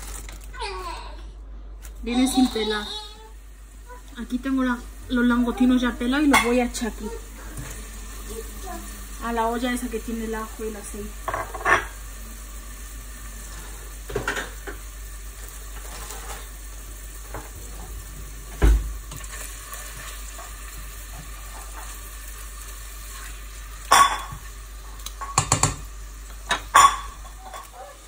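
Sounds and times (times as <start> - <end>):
prawns sizzling in oil: 0.0 - 0.7, 1.8 - 28.0
spatula knocking on pot: 25.3 - 25.8.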